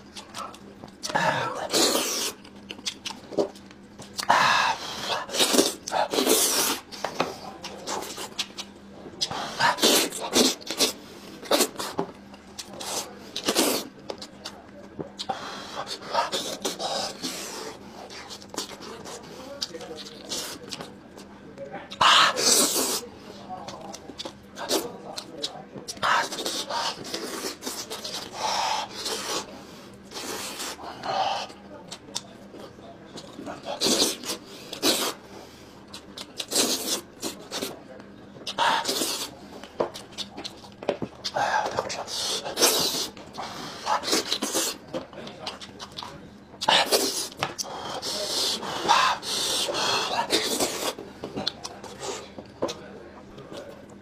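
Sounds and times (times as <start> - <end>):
person chewing: 0.0 - 21.3, 23.7 - 32.3, 33.2 - 35.2, 35.9 - 37.8, 38.4 - 52.8
chewing clicks: 2.4 - 4.3, 51.2 - 52.8.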